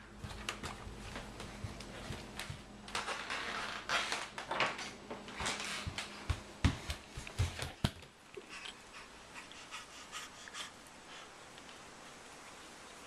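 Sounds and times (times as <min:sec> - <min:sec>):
footsteps on hardwood floor: 0:00.0 - 0:08.1.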